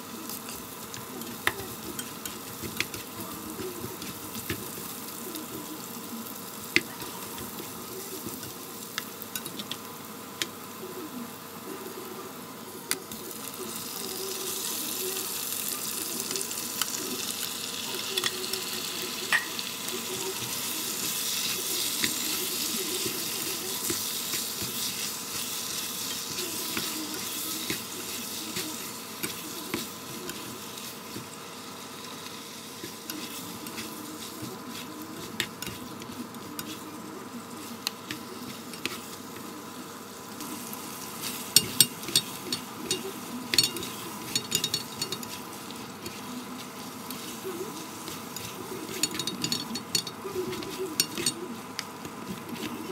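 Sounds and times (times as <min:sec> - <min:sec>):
seafood sizzling in a frying pan: 0:00.0 - 0:52.9
spatula scraping a pan: 0:19.4 - 0:31.4, 0:32.2 - 0:39.2, 0:40.5 - 0:52.9.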